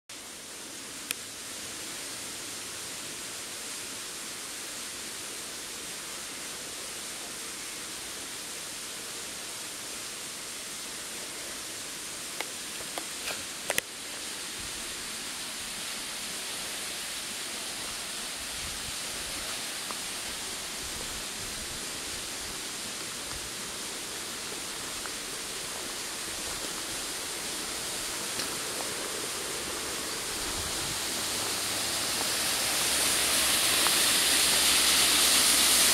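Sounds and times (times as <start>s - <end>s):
running water rushing: 0.1s - 35.9s.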